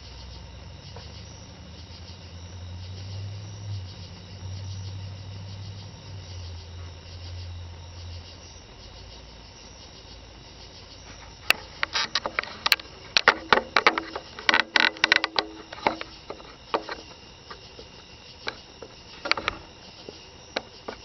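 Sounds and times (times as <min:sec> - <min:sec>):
crickets chirping: 0:00.0 - 0:21.0
low hum: 0:00.0 - 0:21.0
sharp irregular clicks and knocks: 0:11.1 - 0:21.0.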